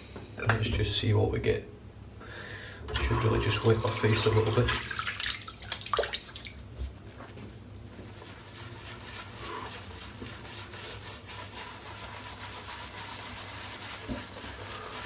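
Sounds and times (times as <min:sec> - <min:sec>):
shaving brush swishing lather: 0:07.9 - 0:15.0.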